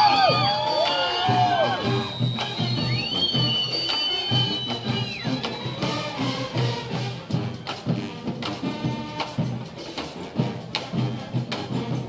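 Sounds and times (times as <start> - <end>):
brass section playing: 0.0 - 9.6
steady drum beat: 0.0 - 12.0.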